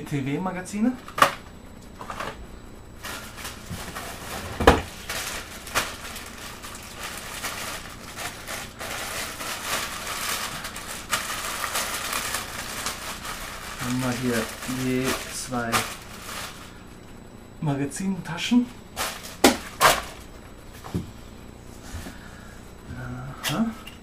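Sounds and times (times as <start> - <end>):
plastic bag crinkling: 3.0 - 16.8.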